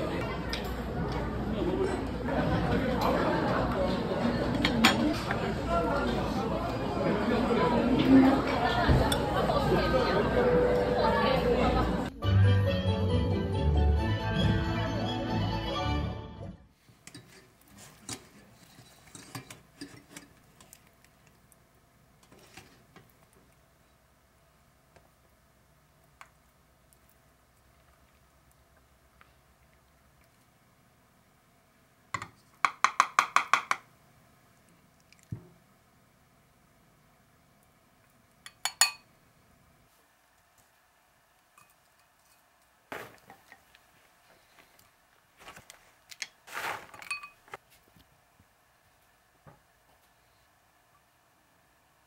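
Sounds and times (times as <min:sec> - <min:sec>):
metal spoon clinking on glass: 0:38.4 - 0:39.1, 0:47.1 - 0:47.4.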